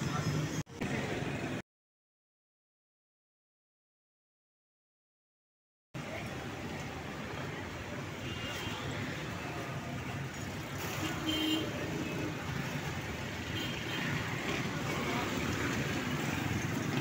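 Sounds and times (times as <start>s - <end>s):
road traffic: 0.0s - 1.6s, 6.0s - 17.0s.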